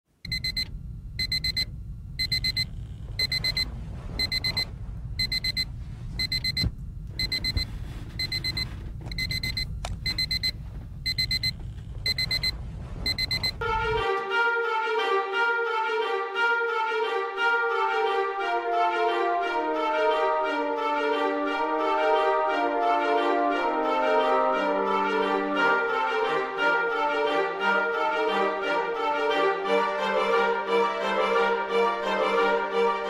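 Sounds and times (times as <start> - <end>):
low hum: 0.2 - 14.3
phone alarm beeping: 0.3 - 13.6.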